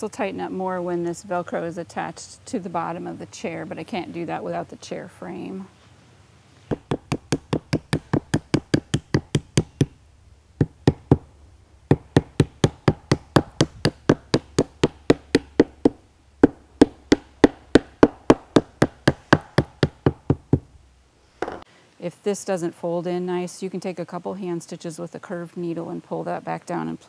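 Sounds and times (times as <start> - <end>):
mallet tapping on tack strip: 6.7 - 10.0, 10.6 - 11.2, 11.9 - 20.7.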